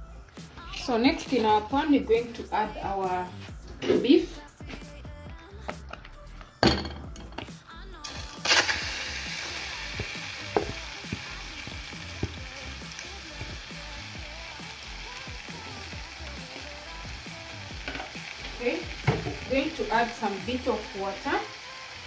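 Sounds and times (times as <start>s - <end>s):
beef sizzling in hot pan: 8.0s - 22.0s.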